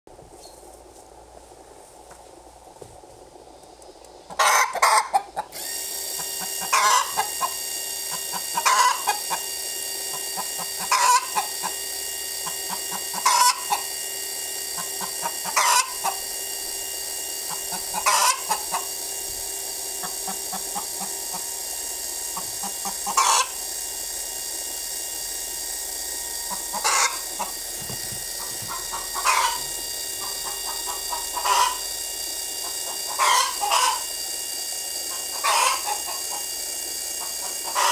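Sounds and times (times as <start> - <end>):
background hum: 0.1 - 37.9
hen calling loudly: 4.3 - 5.5, 6.6 - 7.4, 8.4 - 9.3, 10.8 - 11.5, 12.7 - 13.8, 17.5 - 18.8, 22.6 - 23.6, 26.5 - 27.5, 28.4 - 31.8, 32.6 - 34.0, 35.3 - 36.1, 37.6 - 37.9.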